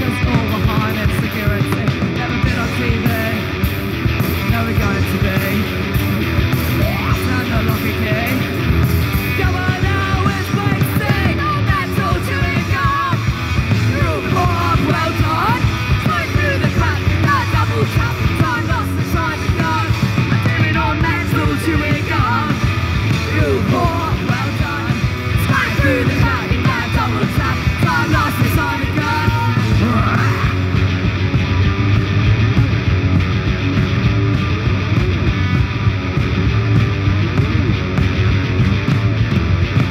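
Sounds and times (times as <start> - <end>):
bass guitar: 0.0 - 39.9
drum kit: 0.0 - 39.9
electric guitar: 0.0 - 39.9
shouted vocals: 9.2 - 30.8.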